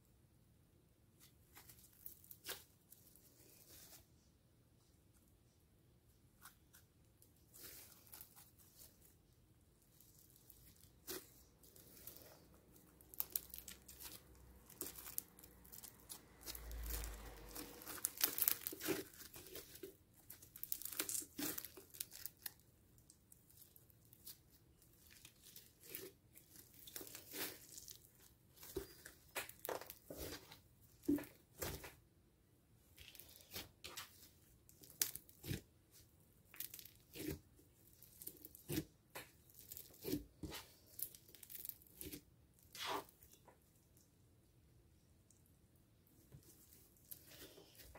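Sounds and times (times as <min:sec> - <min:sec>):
foam slime crackling and popping: 0:09.9 - 0:32.0, 0:33.0 - 0:35.7, 0:36.5 - 0:43.0.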